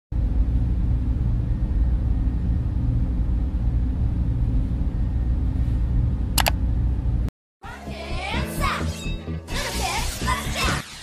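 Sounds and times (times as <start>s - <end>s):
deep muffled rumble: 0.2s - 7.3s.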